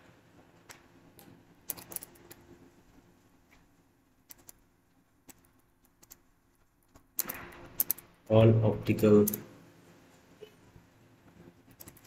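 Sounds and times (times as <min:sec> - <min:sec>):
typing on computer keyboard: 0:06.9 - 0:08.0, 0:11.7 - 0:12.0.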